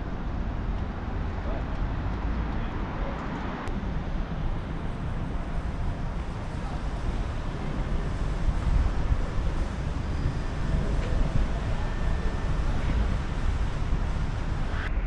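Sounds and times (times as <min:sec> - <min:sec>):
street ambience rumble: 0:00.0 - 0:15.0.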